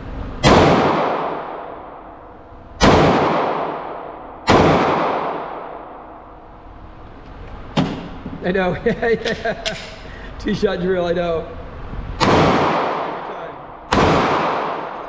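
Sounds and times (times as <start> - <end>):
pistol shots with echo: 0.4 - 2.2, 2.8 - 6.0, 12.2 - 15.0.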